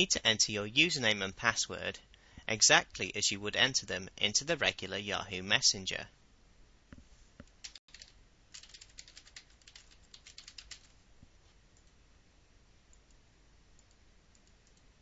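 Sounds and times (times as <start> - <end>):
faint keyboard typing: 7.4 - 11.0, 11.7 - 12.0, 13.8 - 15.0.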